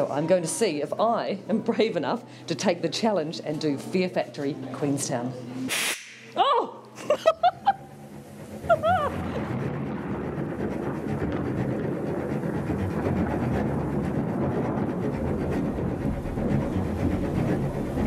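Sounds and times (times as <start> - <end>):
loud rumbling din with crackle: 8.4 - 18.0.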